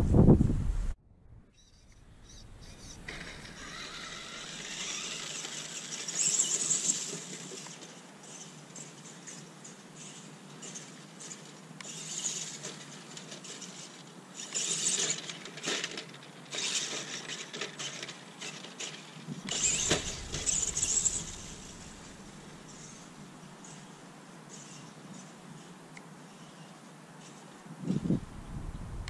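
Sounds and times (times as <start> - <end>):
electric motors whining: 1.8 - 8.9, 19.5 - 23.2
low rumble: 19.7 - 23.2, 28.2 - 29.0.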